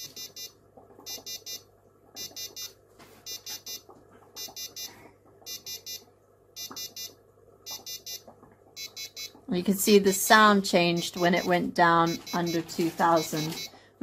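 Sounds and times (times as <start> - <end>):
buzzer beeping in groups: 0.0 - 1.6, 2.2 - 3.8, 4.4 - 6.0, 6.6 - 8.2, 8.8 - 9.4, 10.8 - 13.8.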